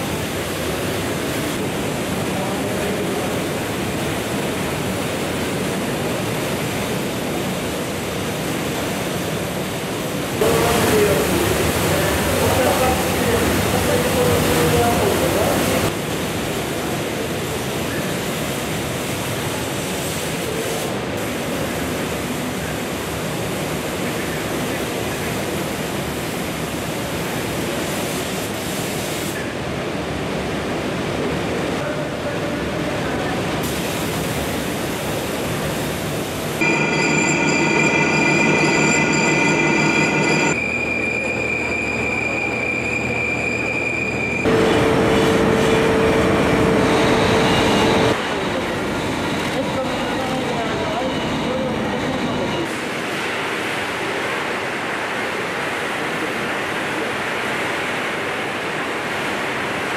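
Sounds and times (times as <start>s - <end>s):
factory machine hum with whine: 0.0s - 59.9s
spray gun hissing: 18.2s - 29.4s, 33.6s - 36.7s.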